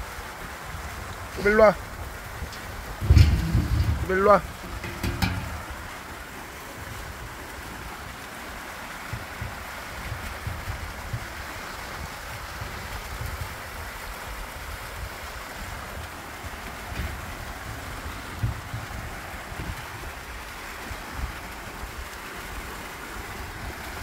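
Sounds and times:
fountain jets splashing: 0.0s - 24.0s
wind rumbling on microphone: 0.0s - 24.0s.

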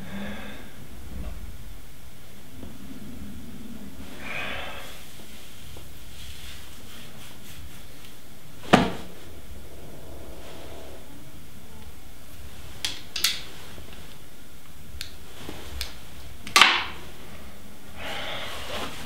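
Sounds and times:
low room hum: 0.0s - 19.0s
eyeglasses clicking on shelf: 12.8s - 13.5s.

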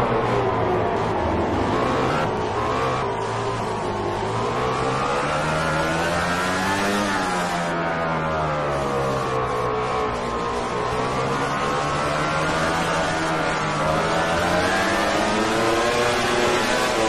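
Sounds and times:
racing motorcycle engine: 0.0s - 17.0s.

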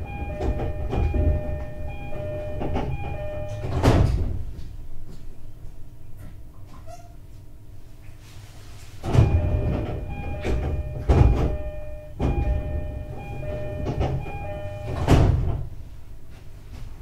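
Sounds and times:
train door thumps: 0.1s - 4.5s, 9.0s - 15.7s
chime tones: 9.2s - 15.0s.

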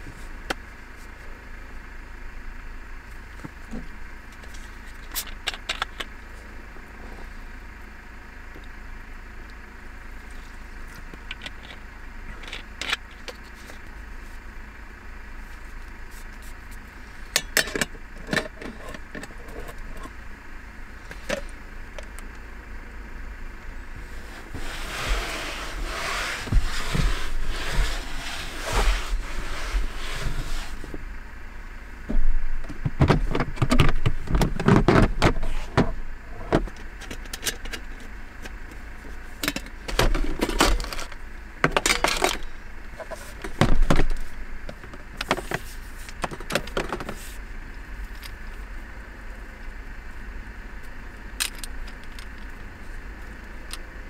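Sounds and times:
rustling: 24.0s - 31.0s.

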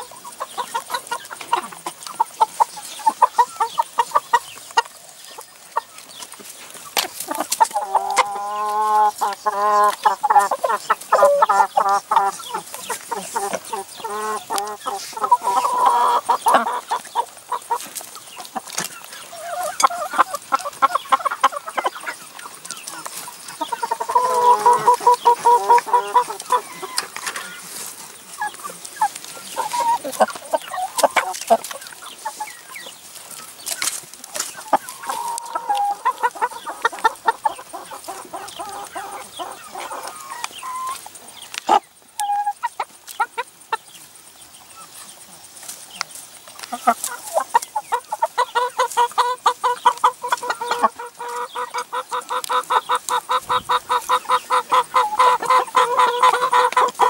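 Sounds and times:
hens clucking: 0.0s - 57.0s.

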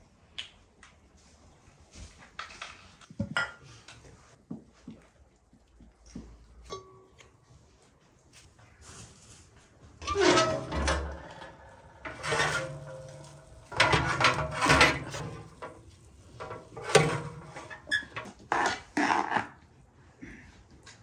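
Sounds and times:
metal oven door clanking: 10.0s - 18.2s
spoon scraping metal pot: 10.0s - 18.7s
baking tray scraping: 10.0s - 18.9s.

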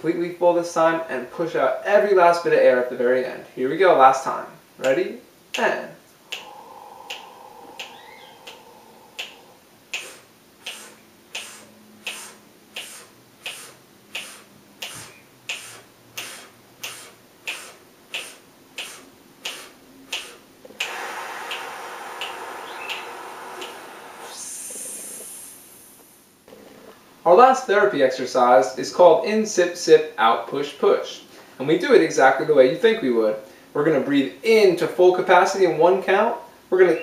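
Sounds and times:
man inhaling deeply: 6.2s - 26.3s
long hissing exhale: 6.2s - 26.9s
fingers snapping: 6.3s - 24.4s.

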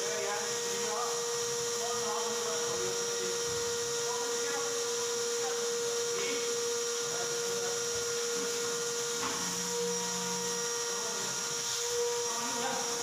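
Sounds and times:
machine whining: 0.0s - 13.0s.

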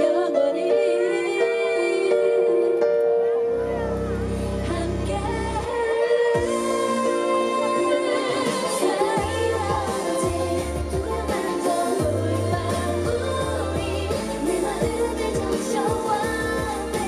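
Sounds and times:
female group singing pop song: 0.0s - 2.9s, 3.7s - 17.0s
backing track with beat and bass: 2.8s - 17.0s.

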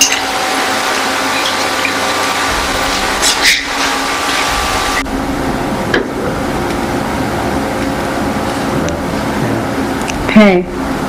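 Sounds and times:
loud steady hiss: 1.8s - 7.6s.

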